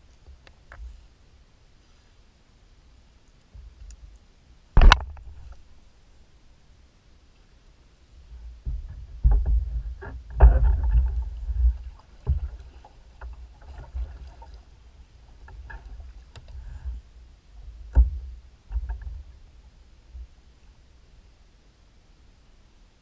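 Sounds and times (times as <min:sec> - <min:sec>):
low rumble of kayak on water: 0:00.0 - 0:23.0
knocks against kayak hull: 0:04.8 - 0:05.4, 0:08.6 - 0:12.6.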